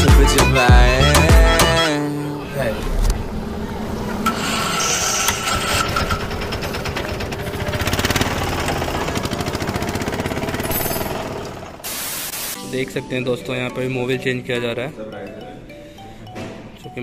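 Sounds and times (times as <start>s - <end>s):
mechanical rubbing and rattling: 2.6s - 11.8s
fast even rattle: 4.2s - 11.8s.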